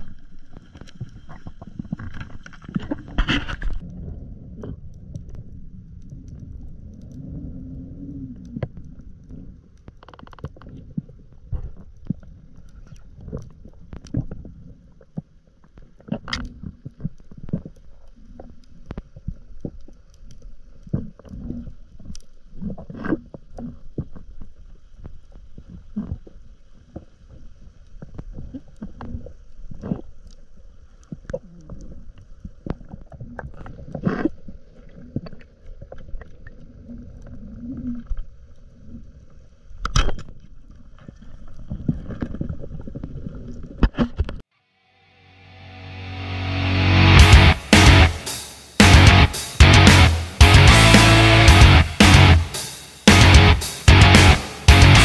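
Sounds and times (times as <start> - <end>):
muffled underwater water rumble: 0.0 - 39.7.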